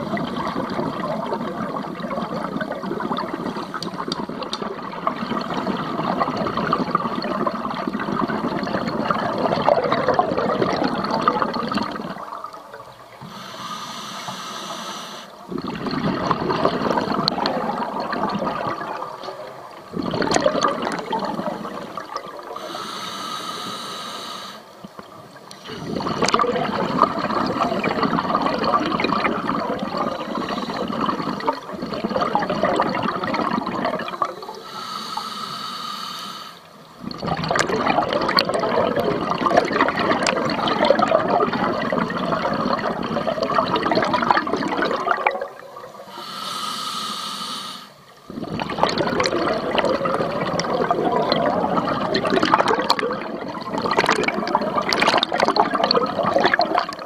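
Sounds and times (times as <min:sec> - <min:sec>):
underwater bubbling exhale: 0:00.0 - 0:57.0
regulator inhale hiss: 0:13.2 - 0:15.4, 0:22.6 - 0:24.8, 0:30.1 - 0:31.4, 0:34.2 - 0:36.8, 0:46.0 - 0:48.1.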